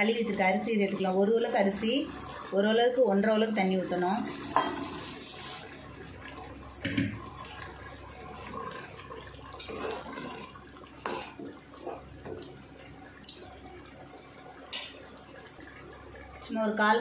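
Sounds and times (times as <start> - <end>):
liquid sloshing in a pot: 0.0 - 16.5
ladle scraping and clinking on pot: 4.3 - 5.6, 9.6 - 12.0.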